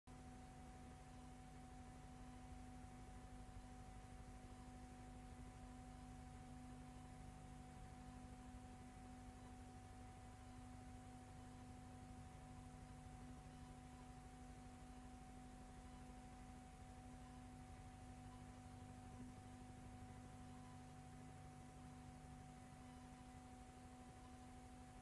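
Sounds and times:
faint steady hum: 0:00.1 - 0:25.0
low hiss: 0:00.1 - 0:25.0.

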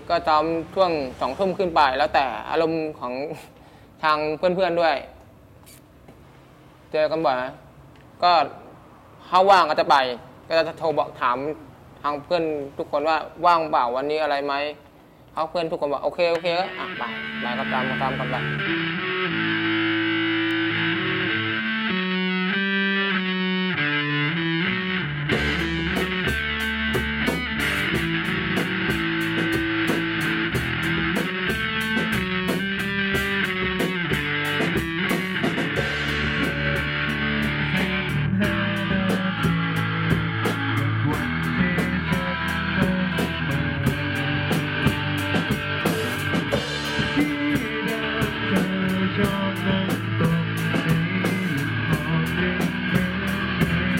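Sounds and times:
electric guitar rock music: 0:16.3 - 0:53.9
steady drum beat: 0:25.3 - 0:53.9.

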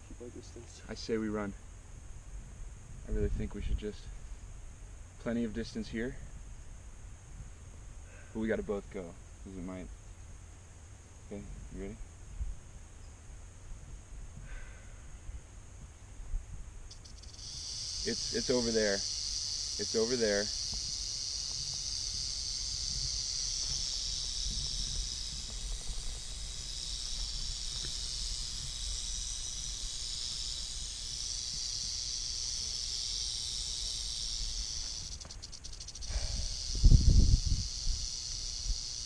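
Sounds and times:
rattlesnake rattling: 0:16.8 - 0:39.0
loud low bumps and rumbles: 0:20.7 - 0:30.5.

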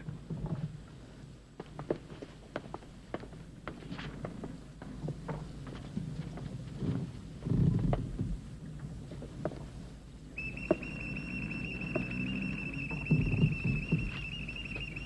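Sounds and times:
high-pitched whistle: 0:10.4 - 0:15.0
low rumble: 0:10.9 - 0:15.0.

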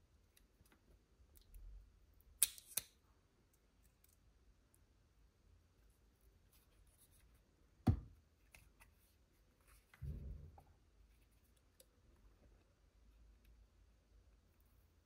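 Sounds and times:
dull thud: 0:07.8 - 0:08.1, 0:10.0 - 0:10.7
sharp plastic knock: 0:07.8 - 0:08.1.

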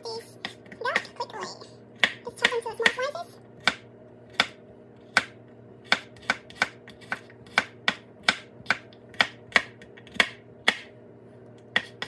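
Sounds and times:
knife chopping on wooden board: 0:02.0 - 0:03.0, 0:03.6 - 0:10.9, 0:11.7 - 0:12.0.

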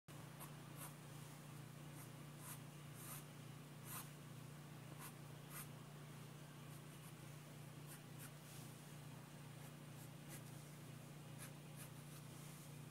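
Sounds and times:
steady low hum: 0:00.1 - 0:12.9
pencil scratching on paper: 0:00.4 - 0:01.0, 0:01.9 - 0:04.1, 0:05.0 - 0:05.7, 0:07.8 - 0:08.4, 0:09.6 - 0:10.5, 0:11.4 - 0:12.3.

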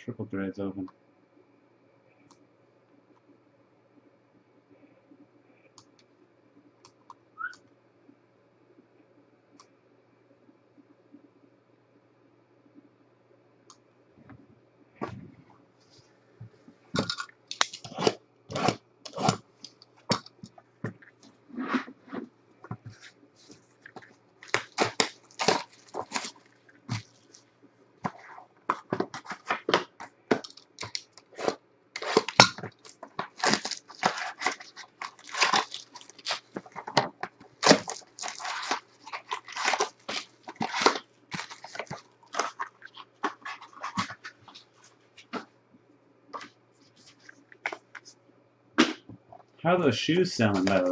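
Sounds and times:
foil packs crinkling and tearing: 0:17.0 - 0:19.8, 0:23.9 - 0:27.5, 0:28.9 - 0:44.7.

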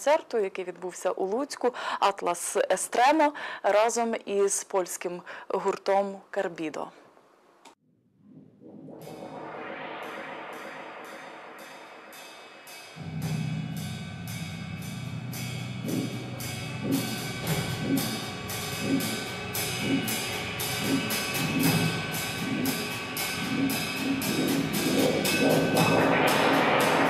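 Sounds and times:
low steady drone: 0:08.3 - 0:27.0
deep beat: 0:13.0 - 0:27.0
high percussive ticks: 0:15.8 - 0:27.0.

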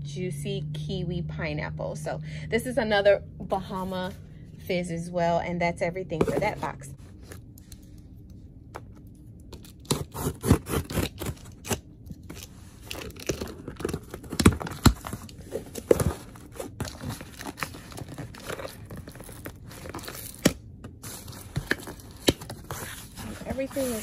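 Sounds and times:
packing tape ripping: 0:09.6 - 0:20.6
packing paper crinkling: 0:10.7 - 0:20.4
cardboard scraping: 0:21.0 - 0:24.0.

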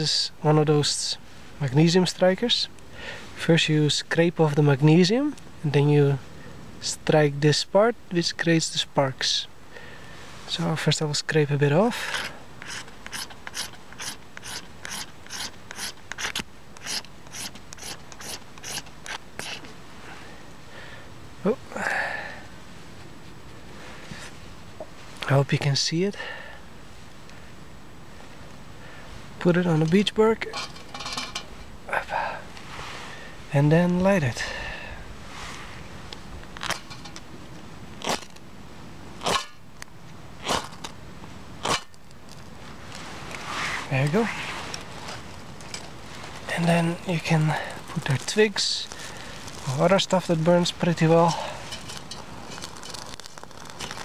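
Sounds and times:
steel scraper rasping rod: 0:12.2 - 0:19.6.

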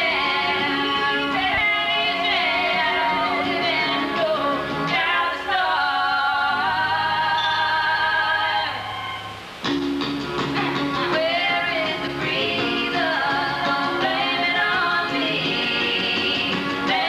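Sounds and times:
instrumental backing: 0:08.6 - 0:17.0.

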